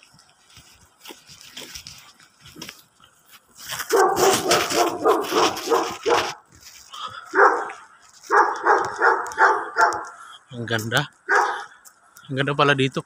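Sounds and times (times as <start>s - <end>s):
dog barking: 3.9s - 6.4s, 7.3s - 10.2s, 11.2s - 11.8s.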